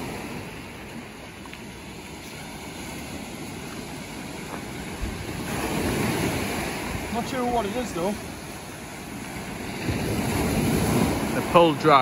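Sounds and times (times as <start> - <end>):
wind on microphone: 0.0 - 11.5
surf washing on beach: 0.0 - 12.0.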